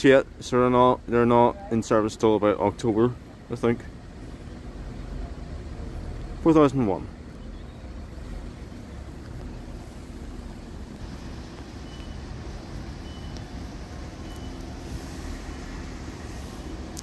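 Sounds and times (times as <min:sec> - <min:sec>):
road traffic rumble: 0:00.0 - 0:17.0
wind: 0:00.0 - 0:17.0
faint short high beeps: 0:13.0 - 0:13.4, 0:14.2 - 0:14.6.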